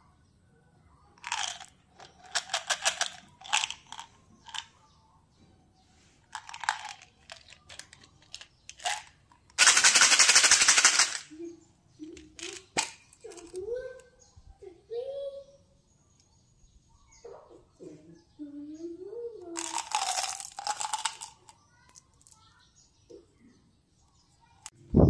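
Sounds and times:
candy container shaken rattle: 1.2s - 4.7s, 6.3s - 11.3s, 12.2s - 13.6s, 19.6s - 21.6s
candy tablets clattering into palm: 1.2s - 4.7s, 6.3s - 11.3s, 12.1s - 13.6s, 19.6s - 22.4s
plastic bottle clicks and rattles: 1.2s - 4.7s, 6.4s - 11.3s, 12.2s - 13.6s, 19.6s - 21.5s.

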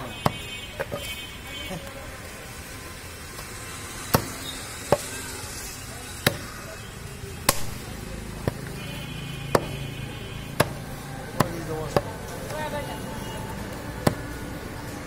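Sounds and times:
cleaver chopping on wooden block: 0.2s - 1.1s, 4.1s - 5.1s, 6.2s - 6.5s, 7.5s - 7.7s, 9.5s - 9.8s, 10.5s - 12.2s, 14.0s - 14.3s.

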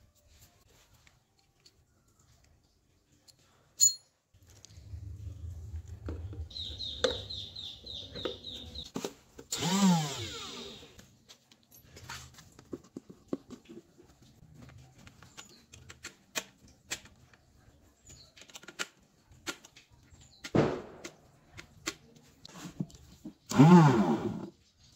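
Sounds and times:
electric motor whir: 9.5s - 11.0s, 23.5s - 24.5s
plastic parts clicking and tapping: 14.6s - 23.4s.

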